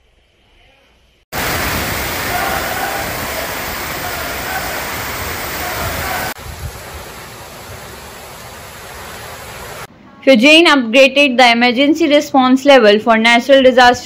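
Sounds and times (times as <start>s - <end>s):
floodwater gushing: 1.3s - 9.9s
heavy rain hissing: 1.3s - 9.9s.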